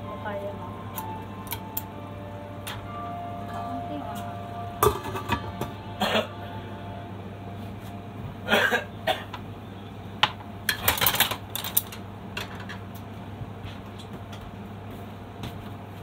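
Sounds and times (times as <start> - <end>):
steady low hum: 0.0 - 10.7
cookware clattering: 4.8 - 6.2.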